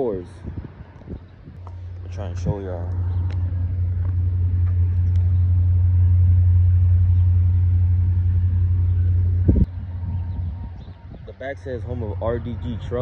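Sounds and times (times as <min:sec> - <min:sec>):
wind buffeting microphone: 0:00.0 - 0:06.3, 0:08.6 - 0:13.0.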